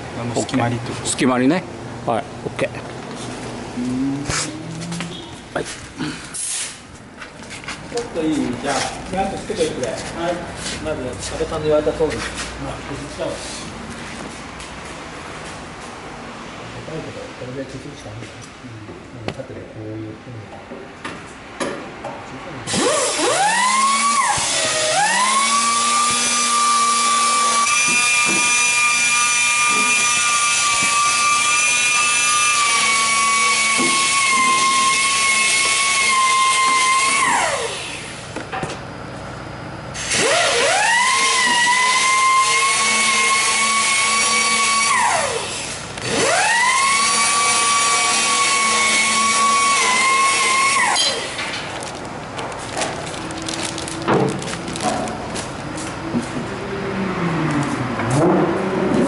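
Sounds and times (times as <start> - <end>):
power tool whining: 22.7 - 38.2, 40.0 - 52.0.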